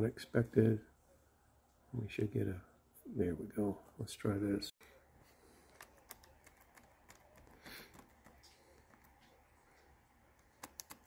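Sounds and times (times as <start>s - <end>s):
laptop key clicks: 10.4s - 11.0s.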